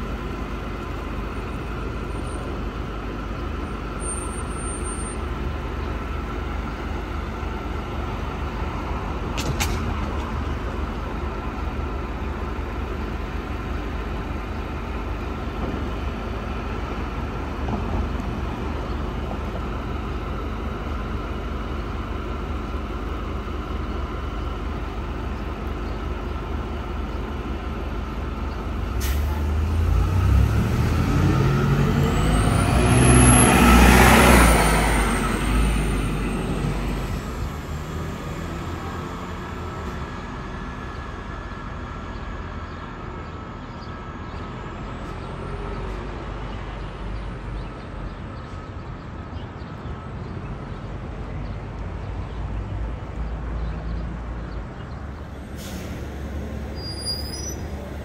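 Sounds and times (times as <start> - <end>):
bus engine idling: 0.0 - 58.0
bus engine revving: 26.9 - 47.5, 52.8 - 58.0
air brake hiss: 29.0 - 29.5, 55.5 - 57.8.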